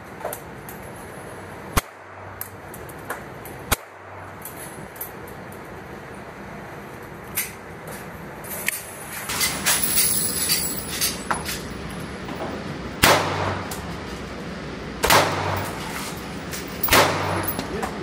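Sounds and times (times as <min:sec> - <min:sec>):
faint sharp gunshot cracks: 0:13.0 - 0:13.8, 0:15.0 - 0:15.6, 0:16.9 - 0:17.7
loud pistol shots echoing: 0:13.0 - 0:13.9, 0:15.0 - 0:15.9, 0:16.8 - 0:17.8.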